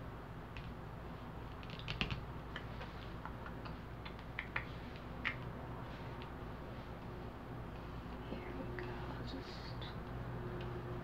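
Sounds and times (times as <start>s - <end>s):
playing cards clicking on table: 1.6s - 2.2s.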